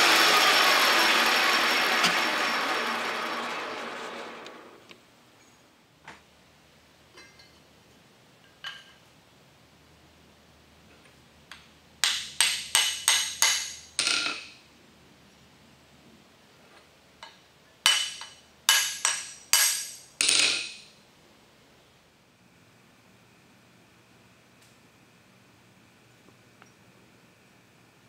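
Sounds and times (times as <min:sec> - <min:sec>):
hammer ringing on anvil: 0:17.9 - 0:20.0.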